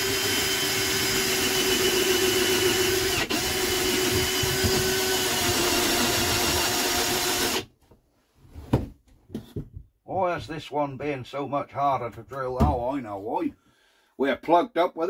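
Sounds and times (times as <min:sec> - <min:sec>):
electric drill running: 0:00.0 - 0:07.7.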